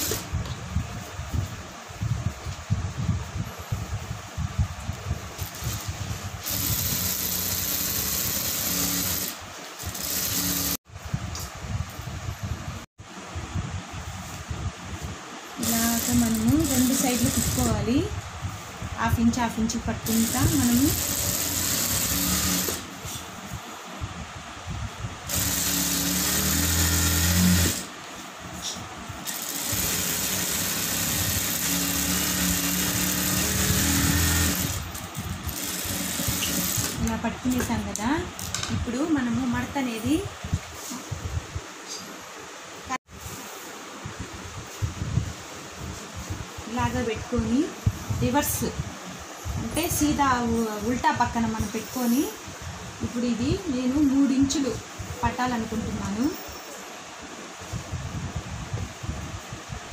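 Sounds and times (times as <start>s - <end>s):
sewing machine stitching: 0.0s - 0.3s, 5.4s - 10.8s, 15.6s - 17.9s, 20.0s - 22.9s, 25.3s - 27.9s, 29.2s - 37.7s.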